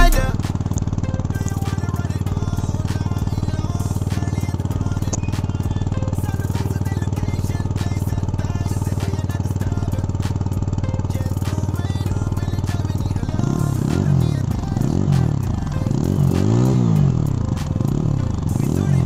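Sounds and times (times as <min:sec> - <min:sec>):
background music: 0:00.0 - 0:19.0
motorcycle engine idling: 0:00.0 - 0:19.0.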